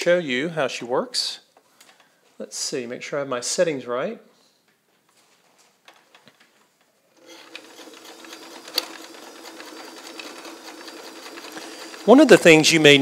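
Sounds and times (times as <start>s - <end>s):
sewing machine motor humming: 7.2s - 13.0s.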